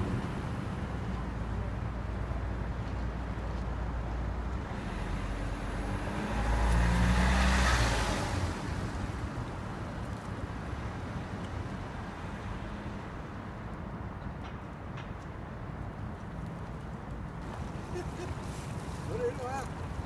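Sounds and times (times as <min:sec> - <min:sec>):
low traffic rumble: 0:00.0 - 0:20.0
vehicle passing by: 0:04.4 - 0:10.3.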